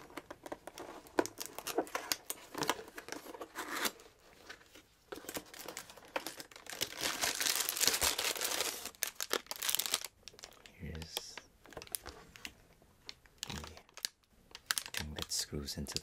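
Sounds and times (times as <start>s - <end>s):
plastic bag crinkling: 5.2s - 12.2s, 13.2s - 15.4s.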